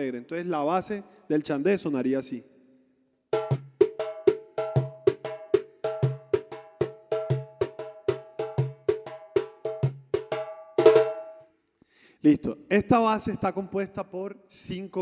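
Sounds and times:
hand drum rhythm: 3.4 - 11.4.

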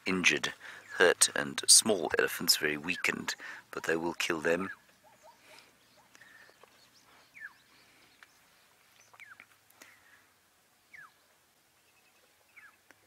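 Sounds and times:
bird whistling: 7.2 - 7.7, 10.9 - 11.2.

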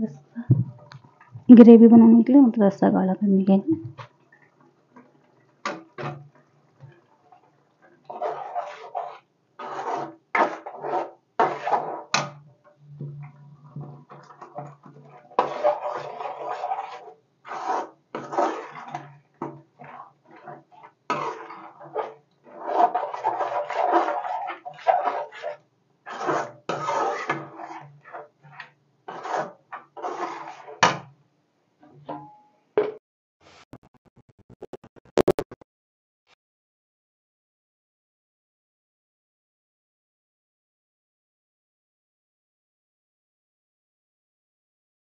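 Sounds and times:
metal spatula scraping in pan: 5.0 - 31.1.

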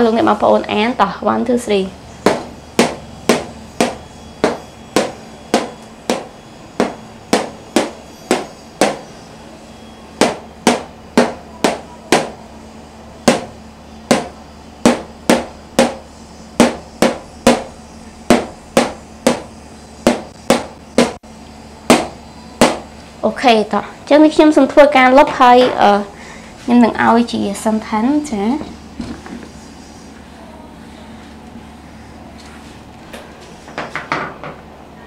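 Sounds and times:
marker tapping on a whiteboard: 2.3 - 9.0, 18.3 - 19.4.

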